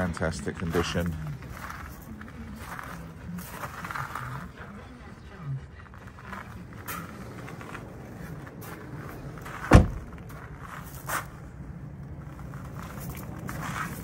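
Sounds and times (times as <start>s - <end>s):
footsteps on gravel: 0.0s - 5.1s, 5.8s - 14.0s
car door shutting: 9.5s - 10.2s.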